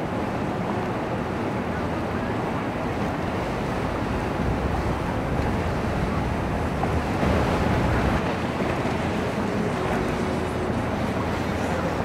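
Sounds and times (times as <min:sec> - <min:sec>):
boat engines: 0:00.0 - 0:12.0
waves: 0:00.0 - 0:12.0
wind on microphone: 0:03.1 - 0:09.9.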